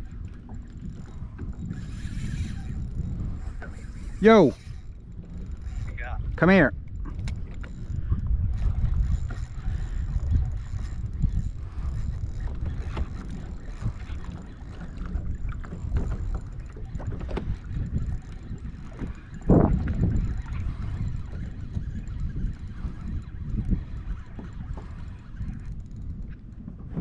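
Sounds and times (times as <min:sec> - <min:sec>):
wind buffeting microphone: 0:00.0 - 0:27.0
small knocks from boat and tackle: 0:06.8 - 0:07.8, 0:12.2 - 0:20.2.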